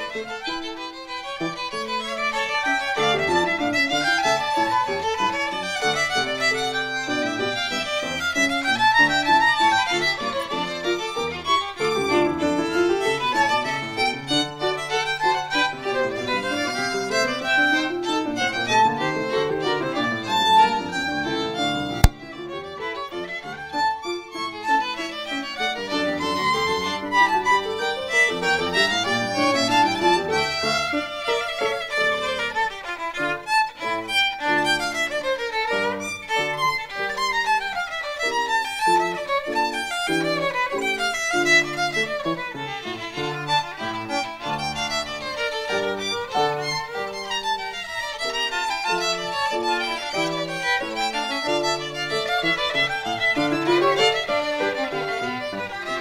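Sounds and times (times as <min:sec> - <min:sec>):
piano accompaniment: 0:00.0 - 0:56.0
violins playing fast duet: 0:00.0 - 0:56.0.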